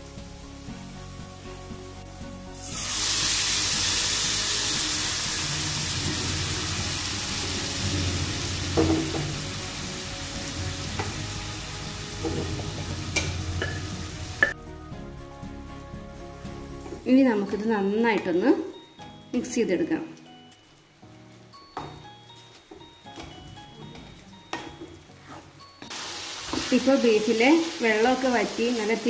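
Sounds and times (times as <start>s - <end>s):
meat sizzling in a pan: 0.0s - 17.1s, 20.3s - 29.0s
spoon knocking against pan: 8.7s - 9.4s, 12.2s - 14.6s.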